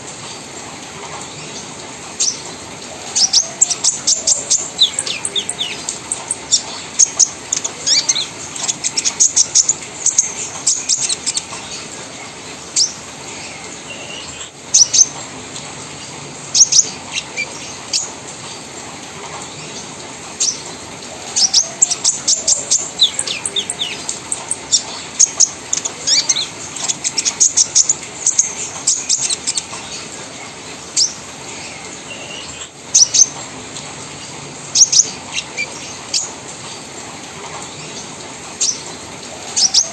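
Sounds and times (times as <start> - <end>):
bird singing high chattering notes: 3.2 - 11.4, 21.4 - 29.7.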